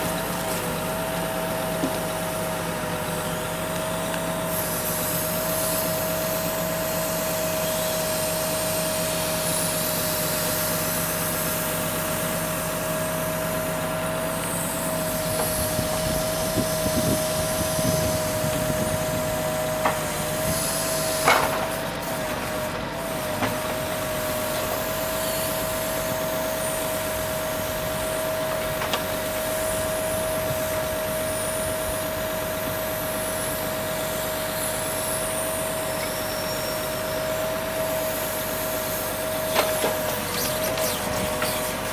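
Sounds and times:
engine and pump drone: 0.0 - 41.9
high hydraulic whine: 0.0 - 41.9.

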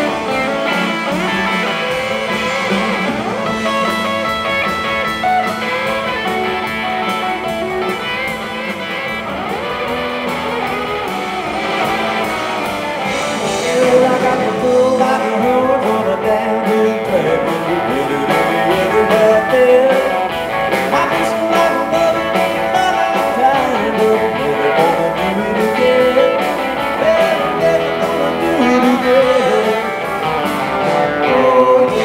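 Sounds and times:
country-rock band playing: 0.0 - 32.0
person singing: 13.1 - 30.1, 30.8 - 32.0.

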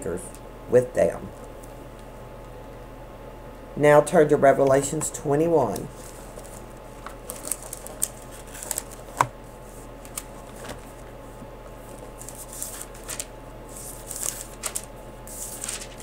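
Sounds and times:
faint steady hum: 0.0 - 16.0
book pages flipping and rustling: 5.9 - 16.0.

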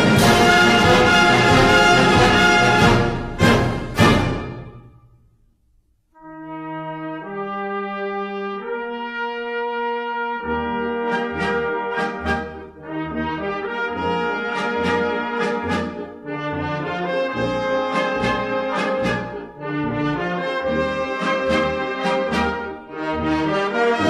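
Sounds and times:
band playing: 0.0 - 4.9
brass chords: 0.0 - 5.3, 6.2 - 24.0.

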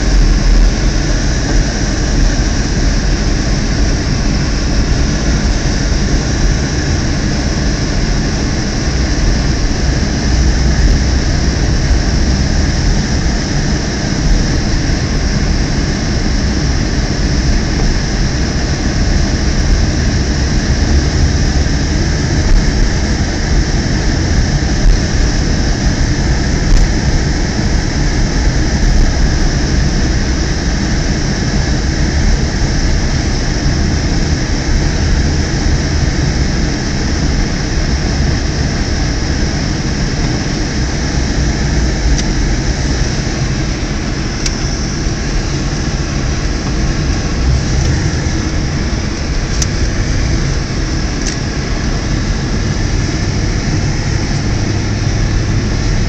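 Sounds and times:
car cabin road rumble: 0.0 - 56.0.

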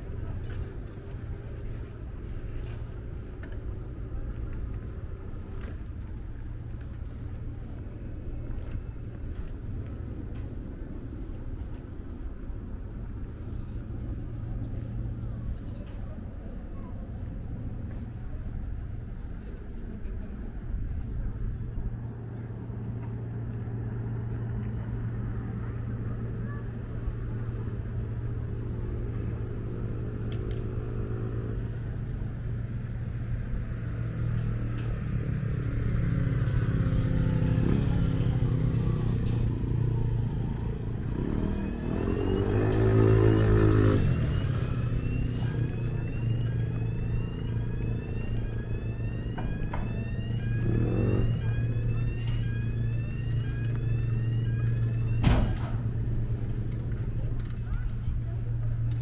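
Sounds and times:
traffic engine hum: 0.0 - 59.0
motorcycle passing by: 35.0 - 55.1.

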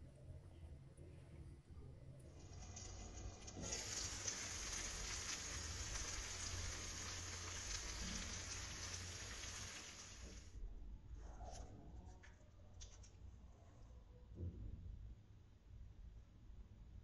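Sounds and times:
food sizzling in a frying pan: 2.4 - 10.5.

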